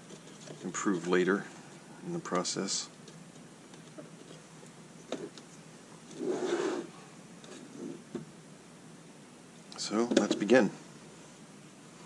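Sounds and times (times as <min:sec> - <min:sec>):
rubbing on cutting mat: 0:06.1 - 0:08.1.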